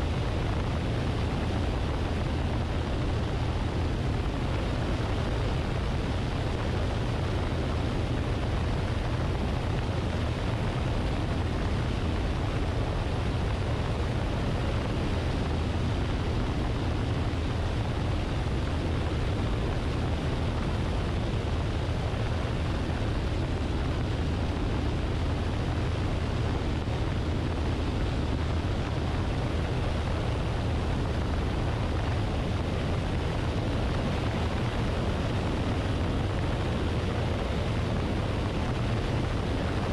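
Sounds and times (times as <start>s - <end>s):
light aircraft engine drone: 0.0s - 39.9s.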